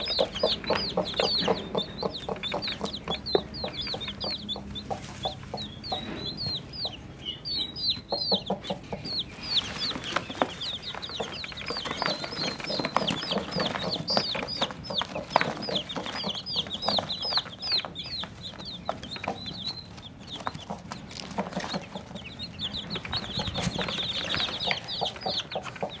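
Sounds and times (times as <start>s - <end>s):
chicks peeping: 0.0s - 26.0s
hen clucking: 0.0s - 26.0s.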